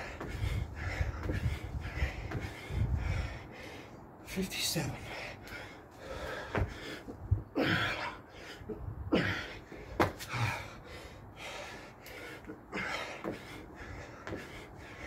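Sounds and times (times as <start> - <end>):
hands and feet thudding on paving: 0.0 - 3.1, 5.4 - 8.1, 9.1 - 15.0
man gasping breaths: 0.0 - 4.2, 5.0 - 15.0.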